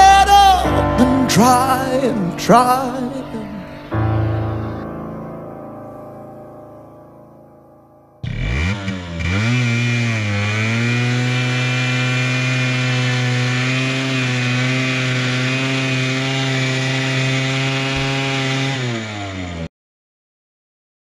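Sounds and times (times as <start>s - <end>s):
two-stroke engine revving: 8.2s - 19.7s.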